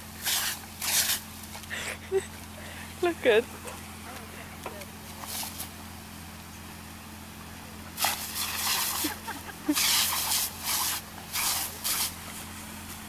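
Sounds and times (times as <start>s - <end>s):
sprinkler water jet hissing: 0.0s - 3.4s, 5.0s - 5.8s, 7.8s - 13.0s.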